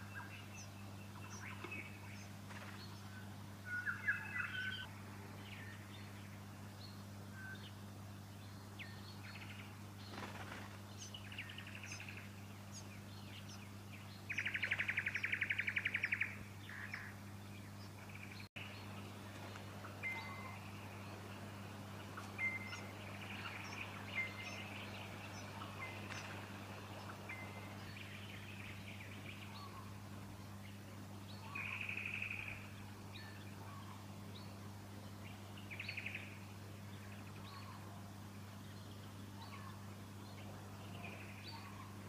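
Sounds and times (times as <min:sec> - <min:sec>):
songbirds chirping: 0:00.0 - 0:42.0
buzzy bird trills: 0:18.1 - 0:30.1.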